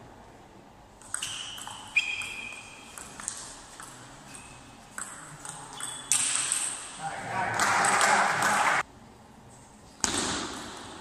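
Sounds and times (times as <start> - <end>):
table tennis ball pinging: 1.0 - 6.9.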